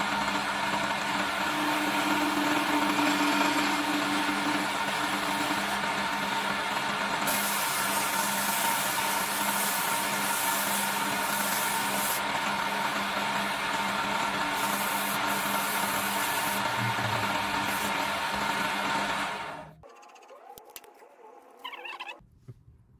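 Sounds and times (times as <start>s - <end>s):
wood lathe motor hum: 0.0s - 19.8s
spinning wooden workpiece rushing: 0.0s - 20.5s.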